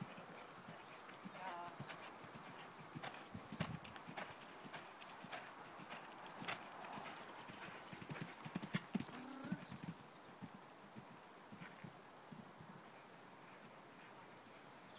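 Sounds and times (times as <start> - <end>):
horse hoofbeats on sand: 0.0 - 10.0.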